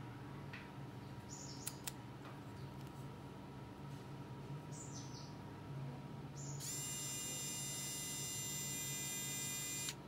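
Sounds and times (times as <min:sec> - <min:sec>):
electric screwdriver motor whine: 0:06.6 - 0:10.0.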